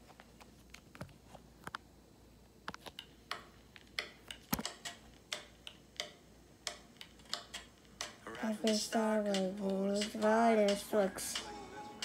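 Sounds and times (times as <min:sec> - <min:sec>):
low room hiss: 0:00.0 - 0:12.0
faint clicks and ticks: 0:02.7 - 0:11.5.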